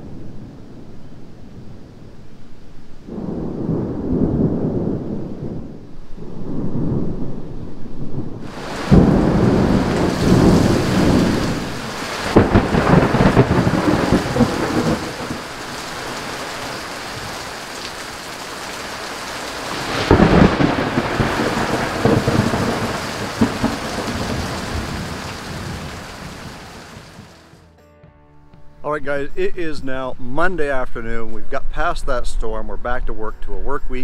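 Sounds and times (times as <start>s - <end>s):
thunder rumbling: 0.0s - 27.6s
heavy rain pouring: 3.0s - 27.6s.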